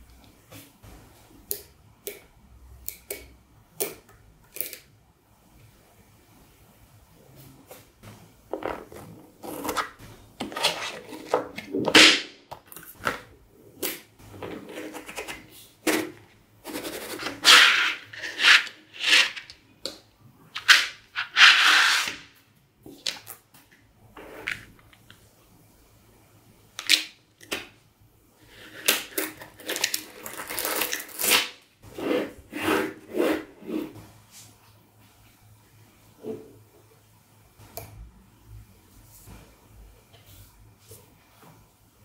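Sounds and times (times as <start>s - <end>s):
paper scraping and rustling: 8.6s - 12.0s, 14.4s - 19.5s, 20.6s - 22.2s.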